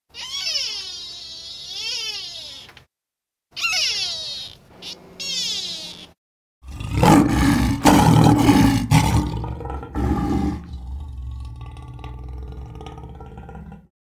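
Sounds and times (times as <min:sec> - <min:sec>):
lion roaring: 0:06.6 - 0:13.9.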